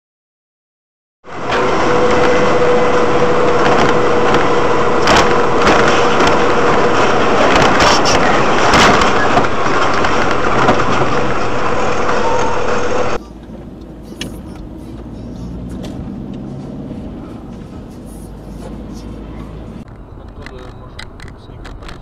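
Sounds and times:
vehicle road noise: 0:01.2 - 0:22.0
knocks and rattles: 0:03.5 - 0:12.2.

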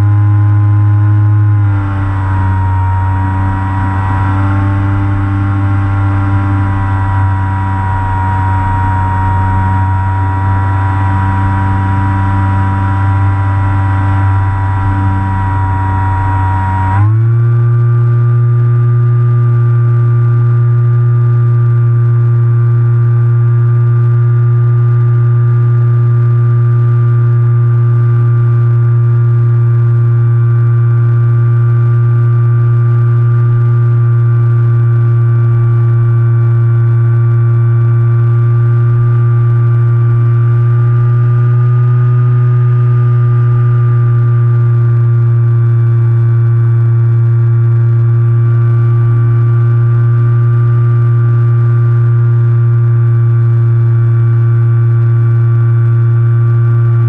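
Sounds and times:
model plane motor drone: 0:01.3 - 0:17.3.

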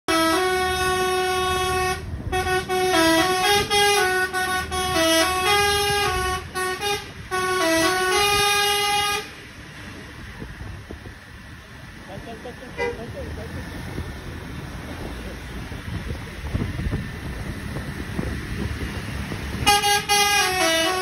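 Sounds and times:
air horn playing a tune: 0:00.1 - 0:09.4, 0:19.5 - 0:21.0
engine and road rumble: 0:00.1 - 0:21.0.

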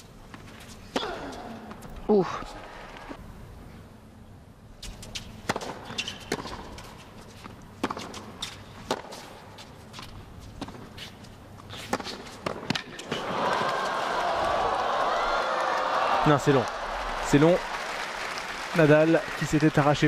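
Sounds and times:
tennis ball hit with rackets: 0:08.8 - 0:09.2
crowd noise: 0:13.1 - 0:20.0.

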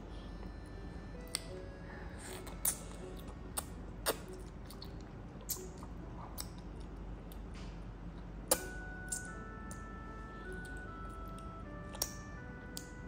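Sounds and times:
child slurping and chewing: 0:02.1 - 0:06.7.

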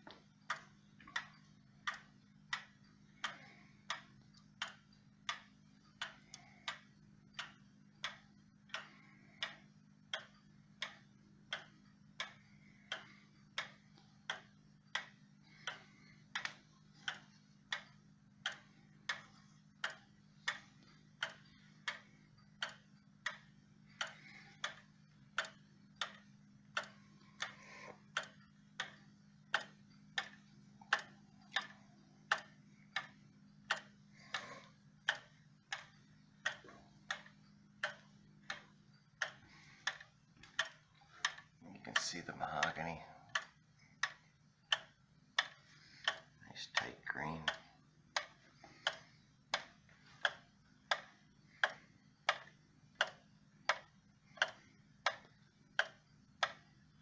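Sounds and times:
faint low hum: 0:00.0 - 0:57.0
wall clock ticking: 0:00.0 - 0:57.0.

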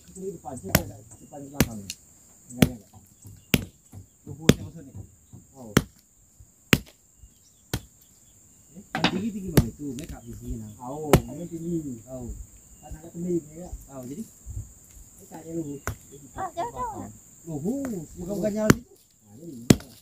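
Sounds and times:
crickets whirring: 0:00.0 - 0:20.0
machete chopping wood: 0:02.6 - 0:03.8, 0:04.5 - 0:04.7, 0:05.7 - 0:06.0, 0:06.7 - 0:07.0, 0:09.0 - 0:09.7, 0:18.6 - 0:18.9, 0:19.7 - 0:20.0.

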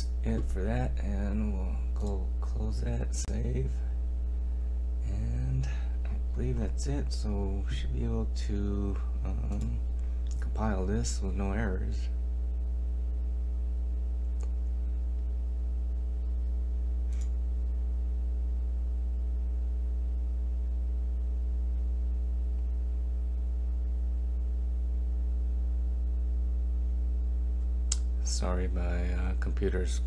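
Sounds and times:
low electrical hum: 0:00.0 - 0:30.0
faint clicks: 0:27.9 - 0:28.1.

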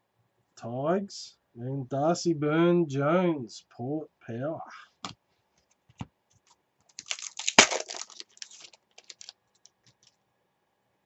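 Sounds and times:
foil wrapper crinkling: 0:06.9 - 0:10.1
cards clicking: 0:07.0 - 0:09.3
foil pack ripping open: 0:07.0 - 0:09.3.

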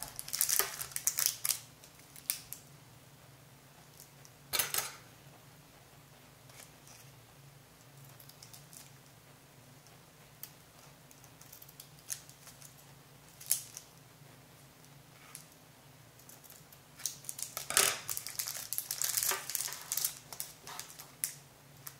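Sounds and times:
plastic bag crinkling: 0:00.0 - 0:02.6, 0:16.3 - 0:21.9.

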